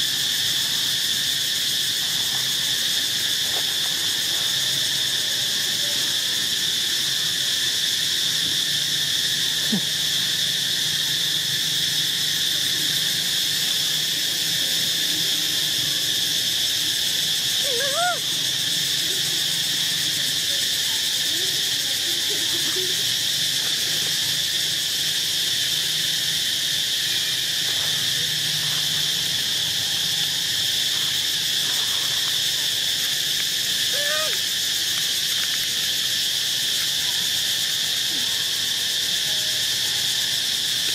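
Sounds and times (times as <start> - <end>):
insects droning in chorus: 0.0 - 40.9.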